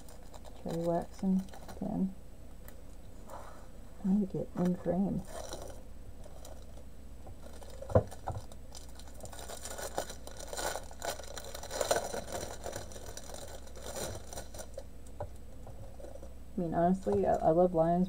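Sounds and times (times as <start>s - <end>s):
plastic packaging crinkling: 0.0s - 2.1s, 4.6s - 16.4s.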